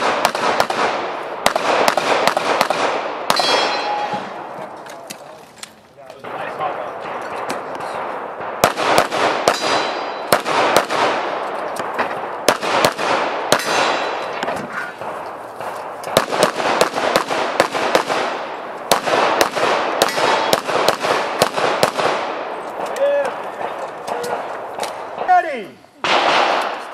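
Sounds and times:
rapid handgun fire: 0.0 - 3.8, 8.0 - 14.2, 15.0 - 25.3, 26.0 - 26.9
metallic ring of steel targets: 3.3 - 4.4.

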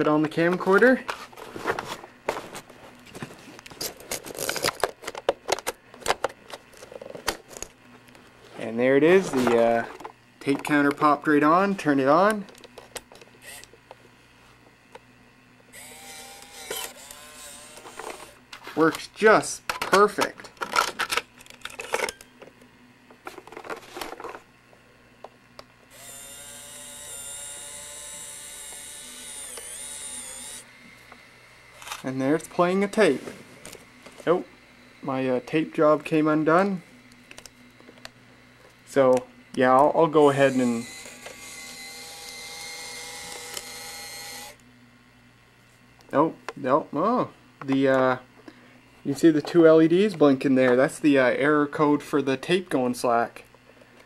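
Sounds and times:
camcorder motor whining: 9.2 - 14.2, 14.8 - 19.0, 21.1 - 24.6, 25.4 - 45.2
tape mechanism clicks: 9.5 - 14.0, 15.7 - 22.6, 25.5 - 34.2, 36.5 - 44.7.

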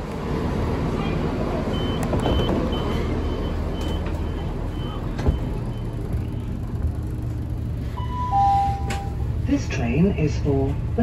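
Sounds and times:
train low rumble: 0.0 - 11.0
train door warning beeps: 1.7 - 6.6, 8.0 - 9.3.

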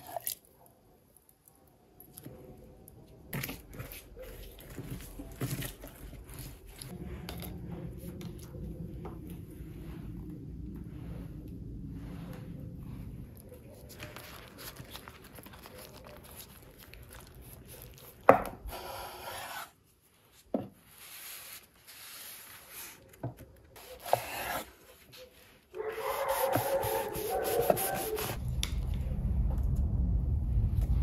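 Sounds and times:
flatbread rustling: 3.3 - 18.3
low rumble: 6.9 - 13.6, 28.4 - 31.0.

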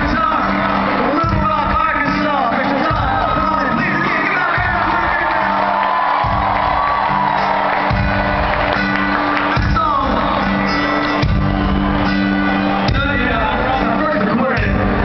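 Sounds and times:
crowd whooping: 0.0 - 15.0
live band music over sound system: 0.0 - 15.0.

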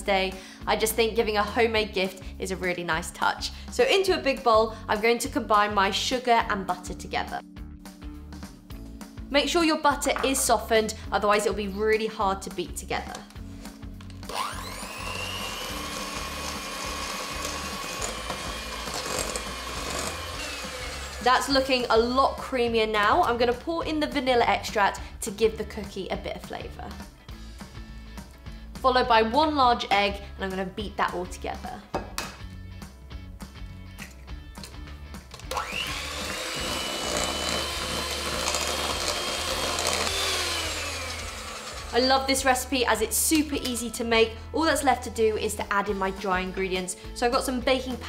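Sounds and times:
background music: 0.0 - 48.0
electric hand mixer whine: 14.2 - 21.9, 35.5 - 42.3.

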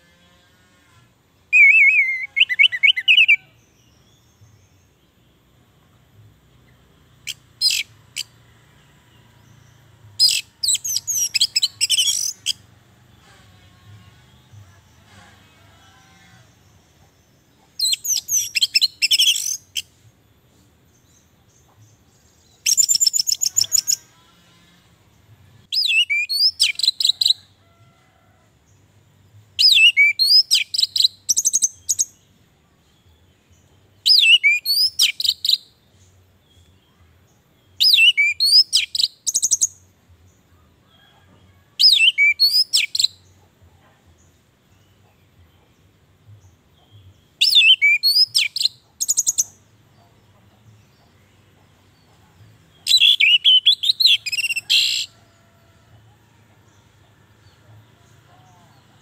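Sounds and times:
thrush singing whistled phrases: 1.5 - 3.4, 25.7 - 27.3, 34.1 - 35.7, 47.4 - 48.7.

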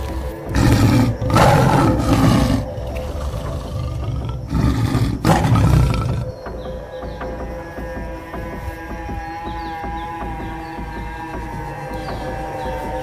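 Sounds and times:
lion roaring: 0.0 - 6.4
background music sustained tones: 0.0 - 13.0.

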